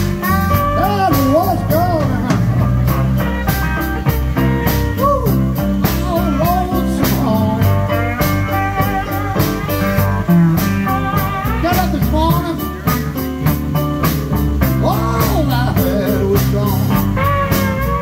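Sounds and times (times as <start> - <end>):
blues band playing: 0.0 - 18.0.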